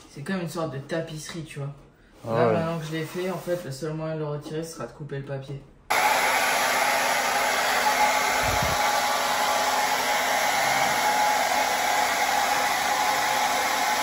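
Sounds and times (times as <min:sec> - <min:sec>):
hair dryer blowing: 0:05.9 - 0:14.0.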